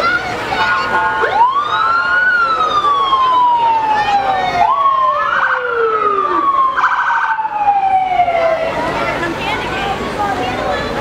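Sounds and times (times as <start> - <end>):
siren warbling bursts: 0.7 - 8.8
siren wailing: 0.7 - 8.9.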